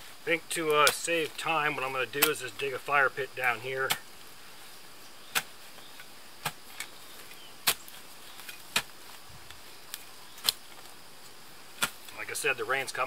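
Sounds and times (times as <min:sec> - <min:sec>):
spade chopping into dry ground: 0:00.7 - 0:01.3, 0:03.8 - 0:04.1, 0:05.2 - 0:06.9, 0:07.6 - 0:09.0, 0:10.4 - 0:10.7, 0:11.8 - 0:12.1.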